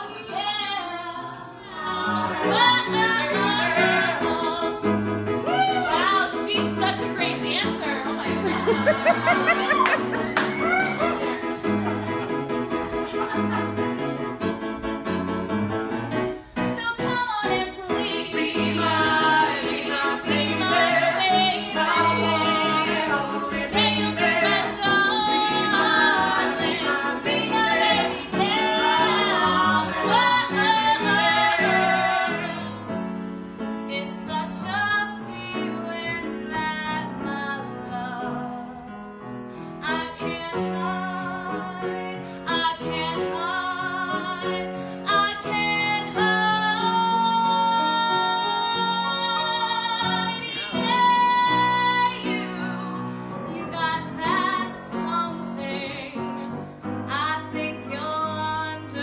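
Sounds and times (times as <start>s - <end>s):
woman singing: 0.0s - 3.6s, 16.7s - 18.7s, 33.9s - 38.9s, 39.8s - 56.4s, 57.1s - 59.0s
piano accompaniment: 1.6s - 59.0s.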